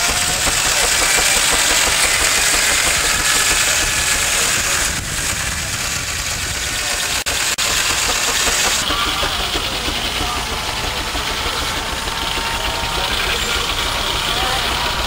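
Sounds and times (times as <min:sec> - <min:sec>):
circular saw cutting log: 0:00.0 - 0:15.0
running machinery: 0:00.0 - 0:15.0.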